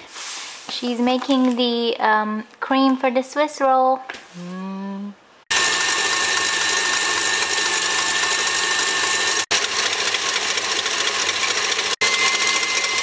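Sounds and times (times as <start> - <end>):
stand mixer motor whining: 5.5 - 13.0
whisk churning cream: 5.5 - 13.0.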